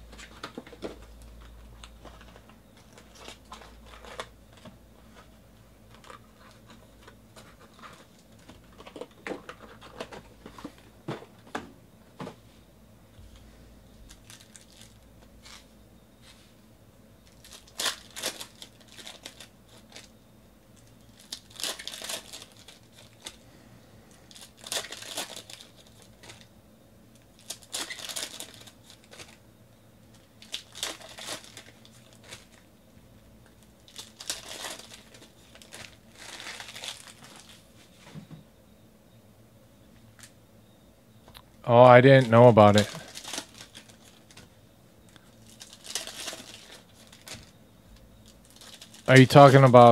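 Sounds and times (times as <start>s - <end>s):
foil packs crinkling and tearing: 0.2s - 4.6s, 14.1s - 15.7s, 17.2s - 20.2s, 20.8s - 23.4s, 24.1s - 26.5s, 27.1s - 29.4s, 30.1s - 32.7s, 33.4s - 37.7s, 42.0s - 44.5s, 45.1s - 47.5s, 48.2s - 49.9s.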